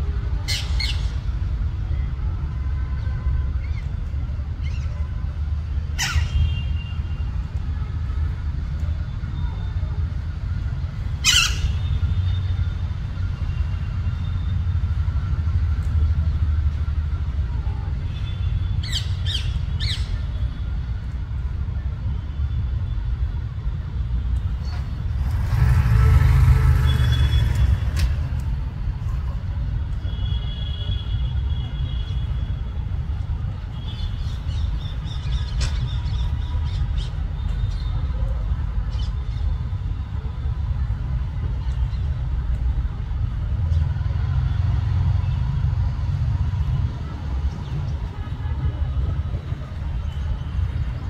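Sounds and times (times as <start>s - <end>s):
parakeets squawking: 11.2s - 11.8s.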